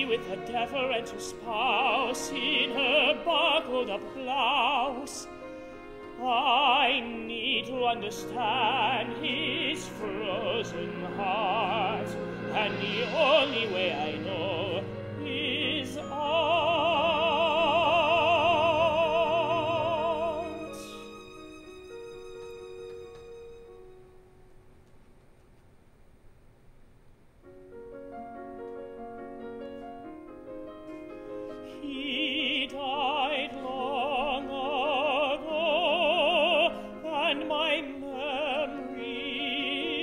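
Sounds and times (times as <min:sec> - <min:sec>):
operatic singing with vibrato: 0:00.0 - 0:22.3, 0:31.5 - 0:40.0
small orchestra accompaniment: 0:00.0 - 0:24.3, 0:27.8 - 0:40.0.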